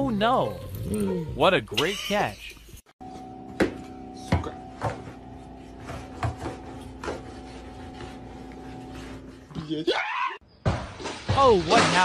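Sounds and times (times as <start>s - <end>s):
mop scraping wooden floor: 4.9s - 9.5s
mop knocking: 5.8s - 7.6s.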